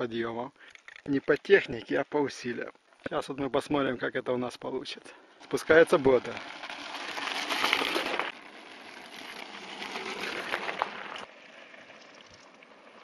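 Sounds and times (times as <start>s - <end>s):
bike tyres crunching on gravel: 5.3s - 13.0s.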